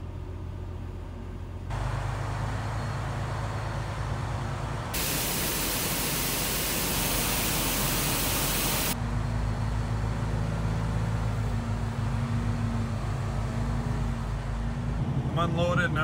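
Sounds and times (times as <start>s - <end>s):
truck diesel engine running: 0.0s - 10.4s.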